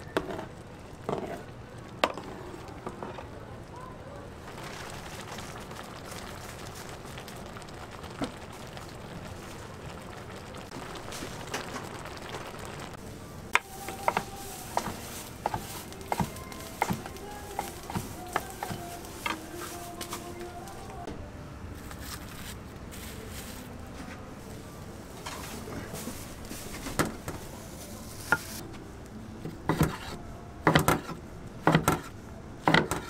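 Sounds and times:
food bubbling in a pan: 0.0s - 19.4s.

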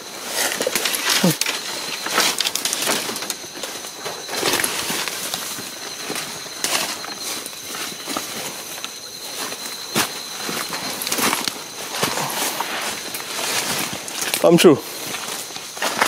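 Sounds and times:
faint high whine: 0.0s - 16.0s
footsteps crunching through dry leaves: 0.0s - 16.0s.

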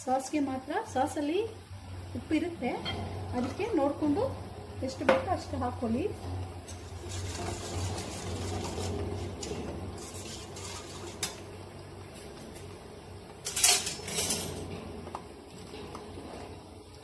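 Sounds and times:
chicken frying in hot oil: 6.6s - 12.8s.

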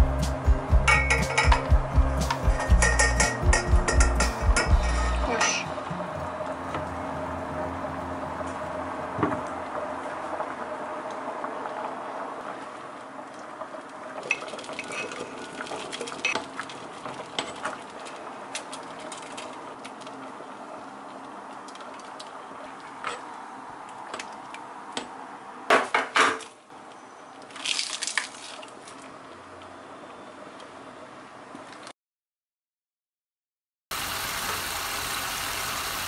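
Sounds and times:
utensils and cookware clinking: 0.9s - 5.8s, 14.2s - 16.4s.

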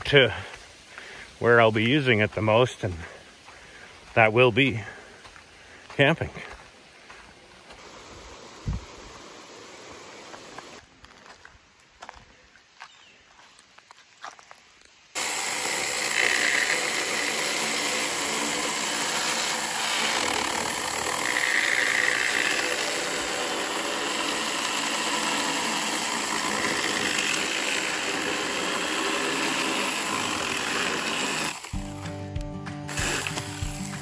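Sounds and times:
electric chainsaw cutting log: 7.7s - 10.8s, 15.2s - 34.0s.

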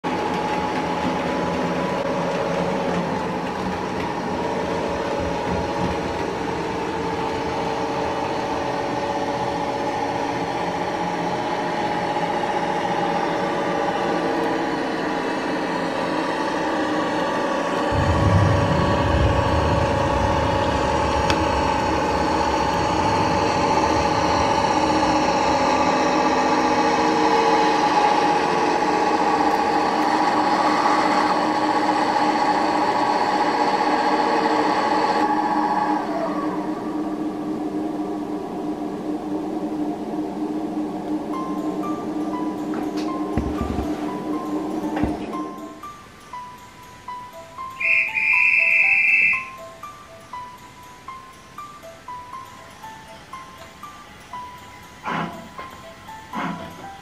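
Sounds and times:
model train humming drone: 0.0s - 57.0s
train low rumble: 0.0s - 57.0s.

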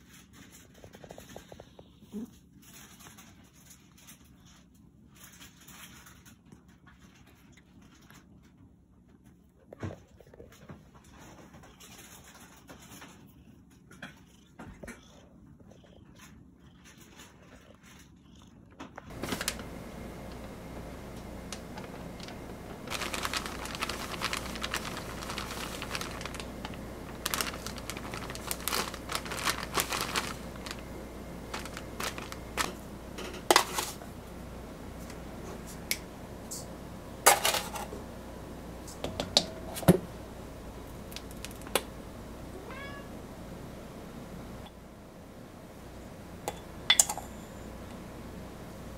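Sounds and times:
steady low hum: 0.0s - 48.9s
rustling of packaging and powder: 19.1s - 34.1s.

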